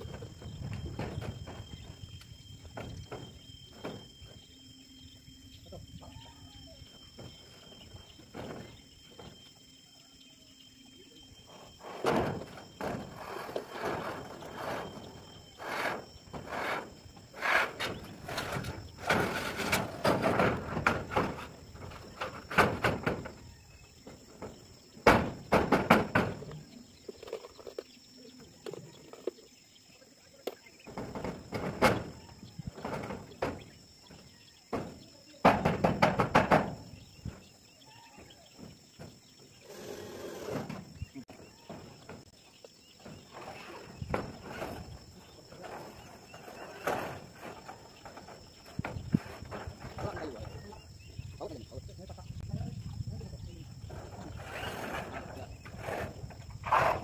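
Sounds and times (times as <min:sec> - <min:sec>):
faint insect drone: 0:00.0 - 0:57.0
knocks on metal roof sheeting: 0:11.9 - 0:26.5, 0:30.9 - 0:37.4.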